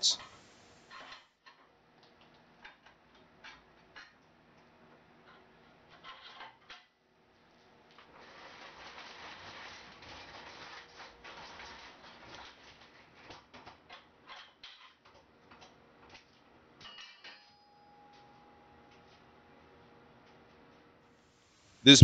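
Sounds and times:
steel casters rolling on concrete: 5.2s - 6.8s, 7.9s - 18.3s.

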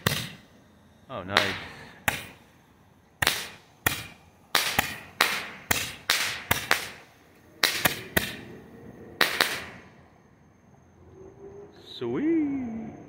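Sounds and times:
roman candle bangs: 0.0s - 0.4s, 1.3s - 2.4s, 3.2s - 8.4s.

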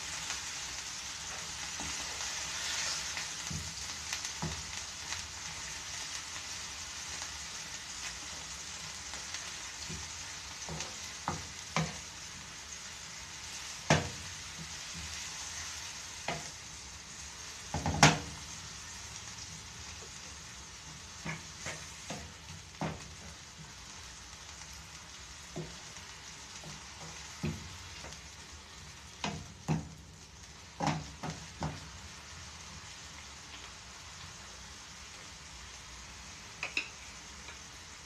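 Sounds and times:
meat sizzling in a frying pan: 0.0s - 38.0s
wooden spoon knocking on pan: 9.8s - 12.0s, 13.9s - 15.1s, 17.7s - 18.4s, 21.2s - 23.4s, 25.5s - 25.8s, 26.6s - 28.2s, 29.2s - 30.0s, 30.8s - 31.9s.

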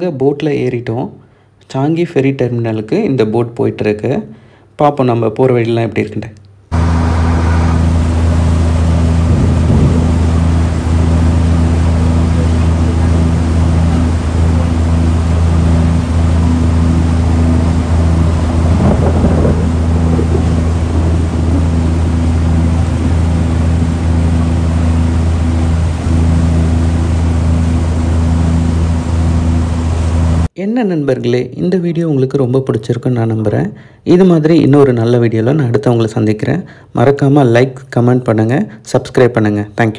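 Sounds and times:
boat engine droning: 6.7s - 30.5s.

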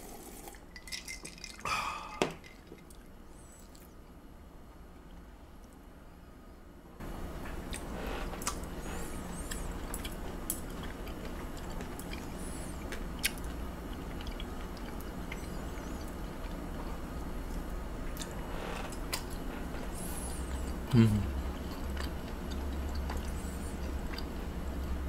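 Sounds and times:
steady low hum: 0.0s - 25.0s
wet chewing: 7.7s - 25.0s.

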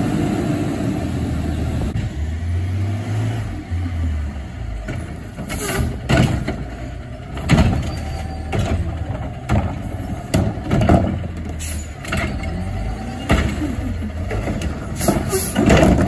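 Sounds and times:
trash cart knocks and bangs: 4.8s - 12.6s, 13.2s - 16.0s.

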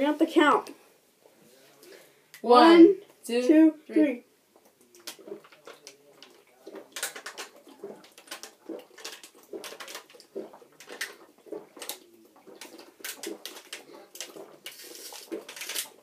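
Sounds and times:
people gulping water from bottles: 4.5s - 16.0s.

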